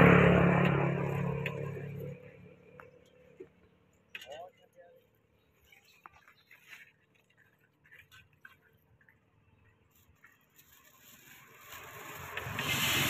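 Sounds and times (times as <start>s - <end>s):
light scrapes: 5.6s - 9.2s.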